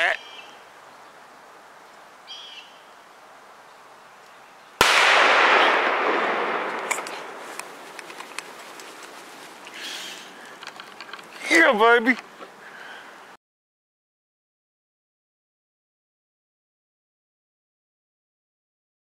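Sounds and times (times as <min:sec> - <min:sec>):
rifle shot echoing: 0:04.8 - 0:08.0.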